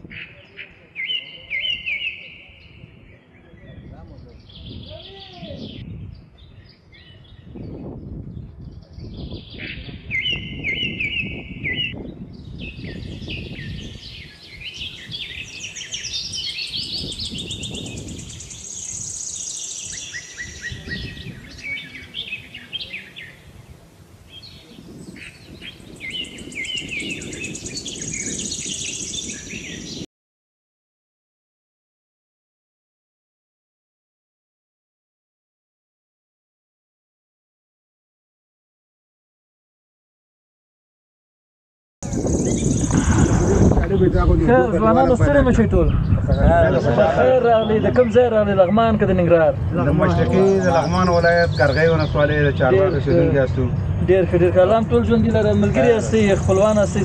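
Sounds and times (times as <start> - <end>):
songbirds chirping and singing: 0.0 - 30.1, 42.0 - 57.0
low rumble: 42.0 - 46.8, 48.8 - 57.0.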